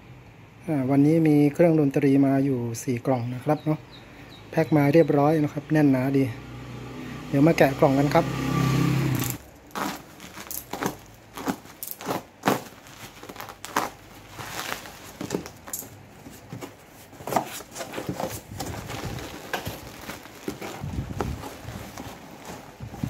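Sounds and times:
bubble wrap and tape ripping: 0:09.2 - 0:15.8, 0:17.6 - 0:23.0
plastic bag crinkling: 0:09.3 - 0:23.0
cardboard box flaps opening: 0:16.3 - 0:23.0.

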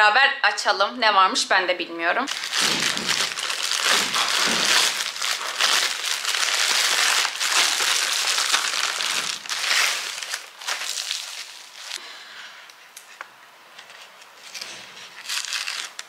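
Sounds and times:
parcel wrapping crinkling: 0:02.3 - 0:12.0, 0:14.4 - 0:16.0.

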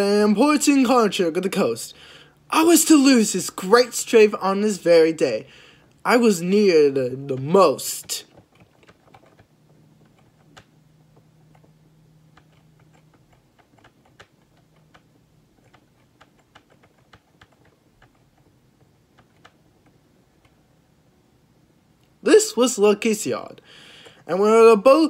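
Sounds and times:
faint low hum: 0:00.0 - 0:25.0
faint irregular clicks: 0:07.3 - 0:20.6.

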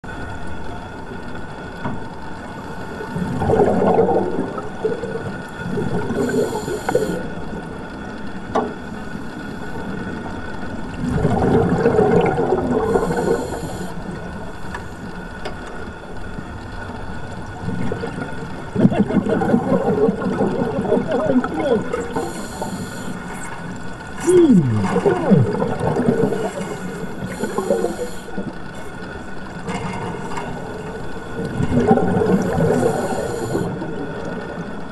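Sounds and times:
underwater background noise: 0:00.0 - 0:34.9
exhaled air bubbling underwater: 0:00.1 - 0:34.9
regulator inhalation hisses: 0:06.2 - 0:07.2, 0:13.0 - 0:14.0, 0:22.1 - 0:23.4, 0:26.3 - 0:28.4, 0:32.7 - 0:33.7.

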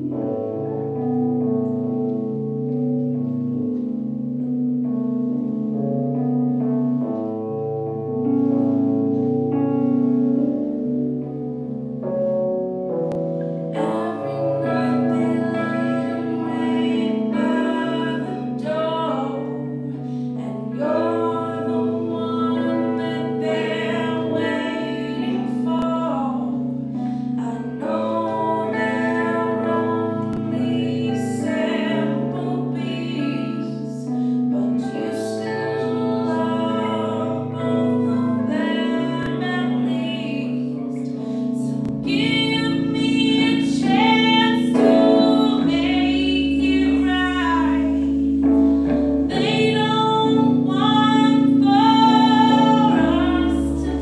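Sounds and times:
electric guitar: 0:00.0 - 0:54.0
keyboard: 0:00.0 - 0:54.0
woman singing: 0:13.7 - 0:54.0.

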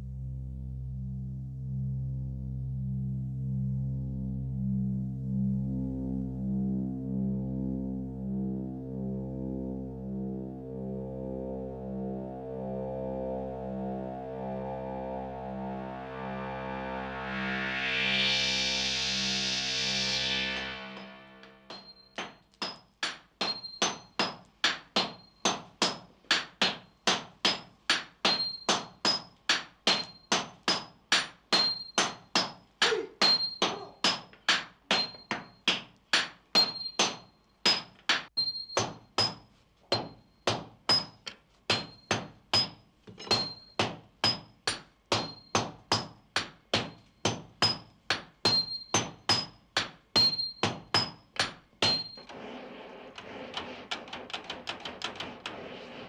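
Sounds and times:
sledgehammers striking steel on anvil: 0:21.7 - 0:52.4.

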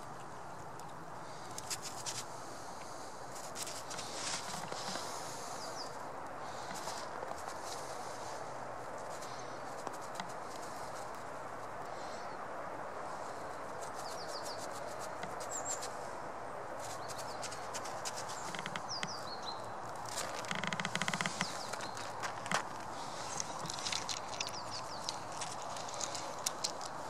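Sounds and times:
steady outdoor hiss: 0:00.0 - 0:27.0
squirrel claws scratching on jeans: 0:01.6 - 0:02.3, 0:03.3 - 0:05.6, 0:06.5 - 0:11.4, 0:13.6 - 0:16.0, 0:16.8 - 0:27.0.

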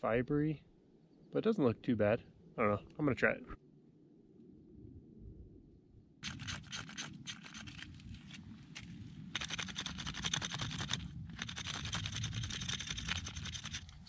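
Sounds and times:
knife scraping cactus pad: 0:06.2 - 0:14.0.

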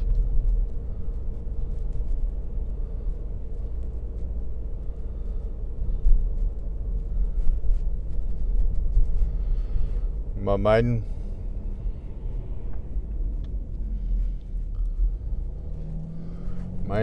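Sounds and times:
car engine and road rumble: 0:00.0 - 0:17.0
faint hum: 0:00.0 - 0:17.0.

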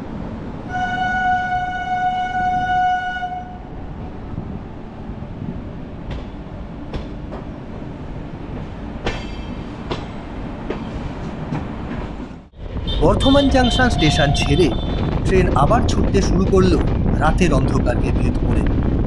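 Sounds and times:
train rumbling: 0:00.0 - 0:19.0
train horn: 0:00.6 - 0:03.7, 0:12.9 - 0:15.0
wheels clacking over rail joints: 0:08.4 - 0:12.4.

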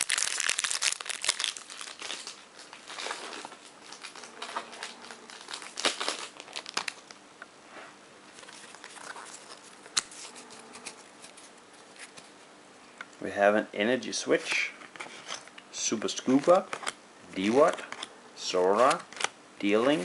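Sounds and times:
foil wrapper crinkling and tearing: 0:00.0 - 0:07.2.

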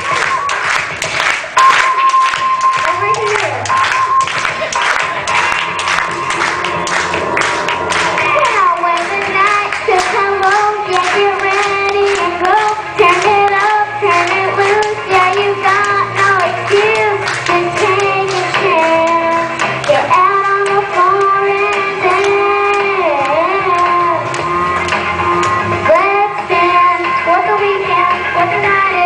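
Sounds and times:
pop backing track with beat: 0:00.0 - 0:29.0
girl singing into a microphone: 0:08.4 - 0:24.3, 0:25.9 - 0:29.0.

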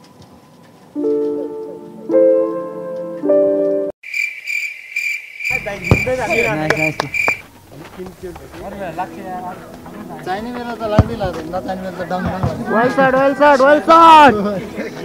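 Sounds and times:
keyboard chords: 0:01.0 - 0:04.0
pulsing cricket chirp: 0:04.0 - 0:07.9.

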